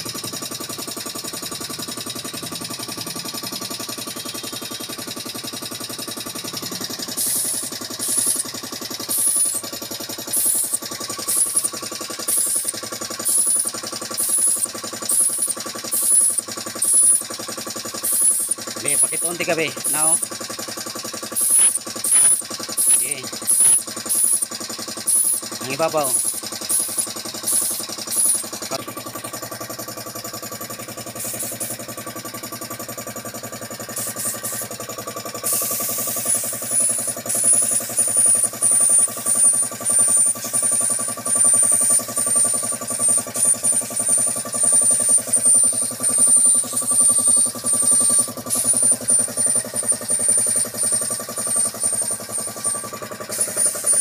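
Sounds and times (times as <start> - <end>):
air compressor running: 0.0 - 54.0
spray gun hissing bursts: 7.0 - 8.4, 9.0 - 9.6, 10.2 - 13.6, 31.1 - 31.8, 33.9 - 34.8, 35.4 - 38.2.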